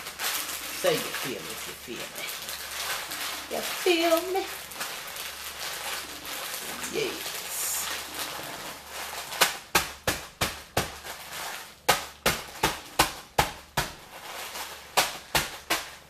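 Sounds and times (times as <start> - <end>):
fist pounding bag of crackers: 8.8 - 16.0.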